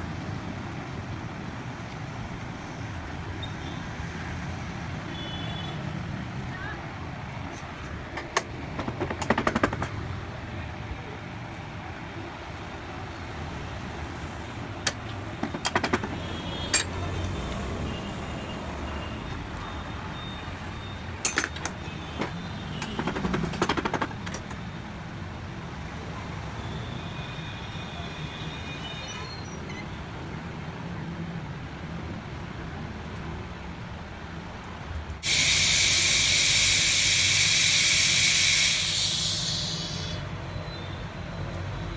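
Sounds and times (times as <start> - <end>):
background traffic noise: 0.0 - 41.9
metal parts and tools clinking: 16.7 - 17.0, 21.2 - 24.5.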